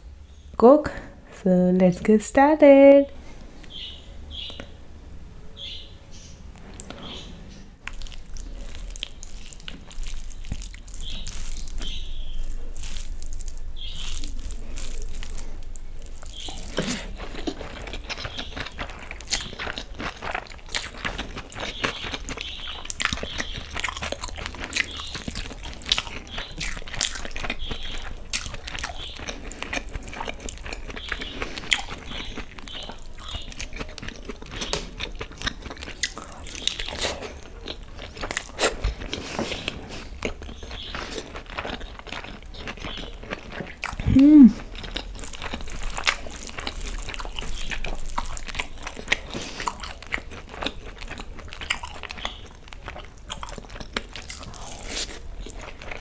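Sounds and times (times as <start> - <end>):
wet chewing and crunching: 6.6 - 56.0
fingers squishing rice in gravy: 7.9 - 44.0.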